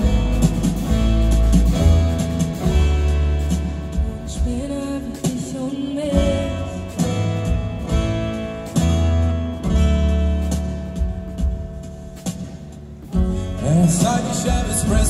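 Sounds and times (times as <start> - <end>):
double bass notes: 0.0 - 4.7, 13.0 - 15.0
light drums: 0.0 - 15.0.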